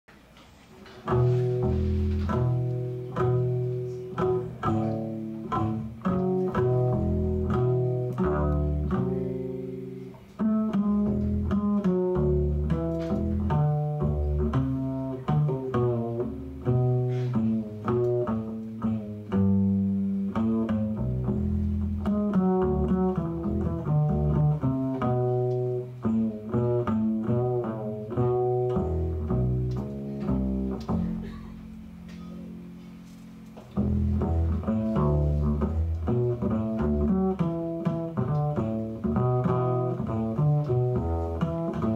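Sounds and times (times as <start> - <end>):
plucked double bass: 0.2 - 41.9.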